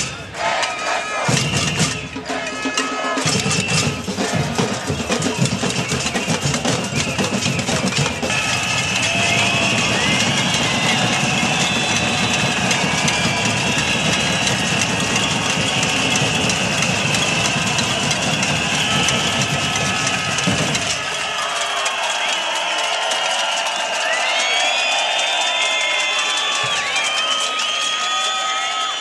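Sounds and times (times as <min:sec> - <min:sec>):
crowd cheering and whistling: 0:00.0 - 0:29.0
banging drums and pots: 0:01.3 - 0:24.2
continuous clatter: 0:03.2 - 0:27.9.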